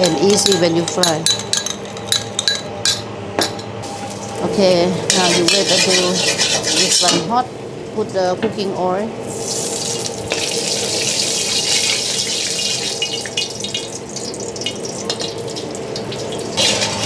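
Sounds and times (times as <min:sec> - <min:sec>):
oil hissing and crackling in a wok: 0:09.3 - 0:17.0.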